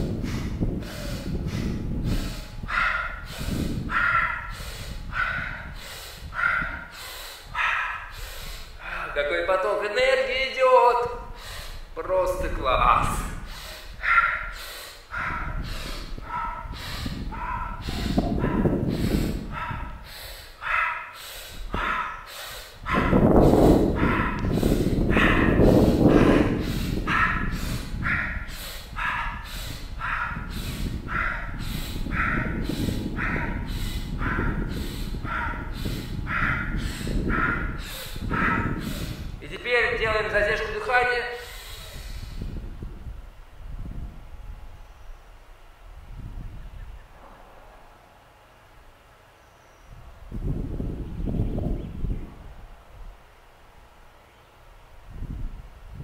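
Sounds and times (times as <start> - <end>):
man breathing hard: 0.0 - 9.3, 11.2 - 12.0, 13.0 - 39.4, 41.2 - 42.8
dog barking: 2.7 - 3.3, 3.9 - 4.5, 5.1 - 5.7, 6.4 - 6.9, 7.6 - 8.1, 14.0 - 14.5, 16.2 - 18.7, 19.5 - 20.0, 20.6 - 21.2, 21.8 - 22.3, 22.9 - 23.2, 24.0 - 24.4, 25.1 - 25.6, 27.1 - 29.4, 30.0 - 30.5, 35.3 - 38.8.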